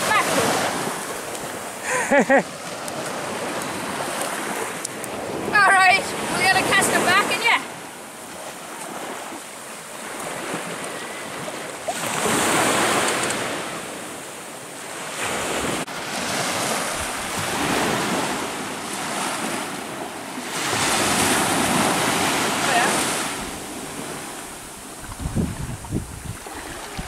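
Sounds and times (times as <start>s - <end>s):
surf breaking on a beach: 0.0s - 27.0s
wind buffeting microphone: 23.3s - 27.0s.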